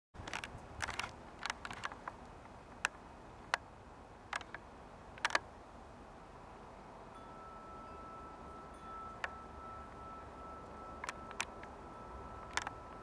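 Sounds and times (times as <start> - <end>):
sharp clicks and ticks: 0.2 - 3.7, 4.3 - 4.6, 5.2 - 5.5, 10.6 - 13.0
faint steady hiss: 0.4 - 13.0.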